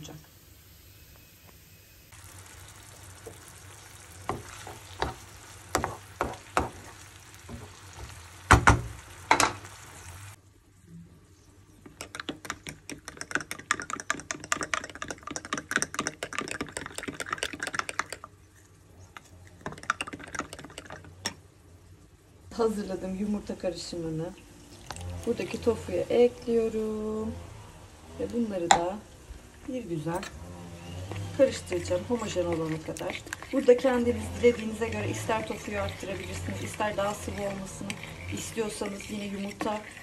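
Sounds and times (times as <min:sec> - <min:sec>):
vegetables sizzling in a frying pan: 0:00.0 - 0:10.4, 0:22.5 - 0:40.0
fork whisking batter in a bowl: 0:12.0 - 0:18.3, 0:31.1 - 0:40.0.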